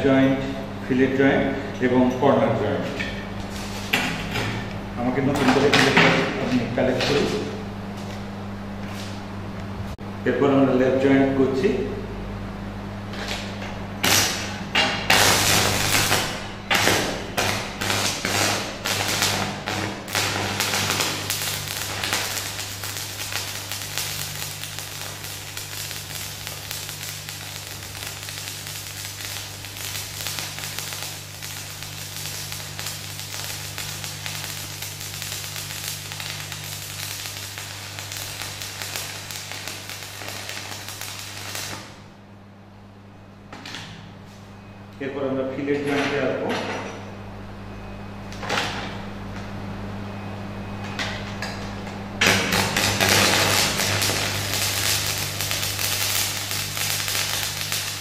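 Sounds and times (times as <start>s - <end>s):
steady low hum: 0.0s - 58.0s
welding arc crackling and hissing: 2.7s - 9.2s, 13.1s - 42.2s, 51.1s - 58.0s.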